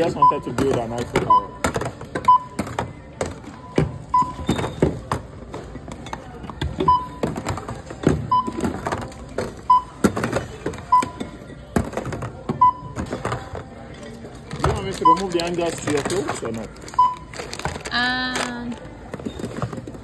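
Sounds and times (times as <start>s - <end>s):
barcode scanner beeping: 0.0s - 2.6s, 3.5s - 4.8s, 6.8s - 7.3s, 8.3s - 8.8s, 9.6s - 10.0s, 14.8s - 15.9s, 16.9s - 17.5s.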